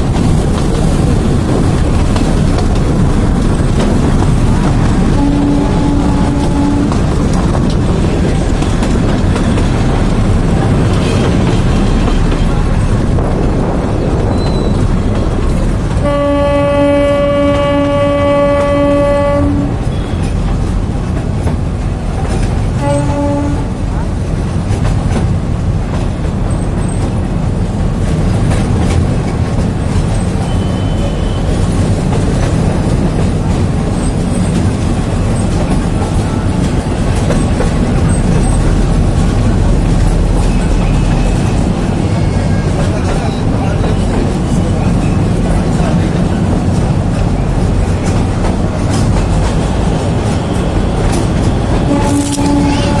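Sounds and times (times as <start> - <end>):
train wheels on track: 0.0 - 53.0
train horn blast: 5.0 - 7.2, 16.0 - 20.4, 22.8 - 23.9, 50.4 - 53.0.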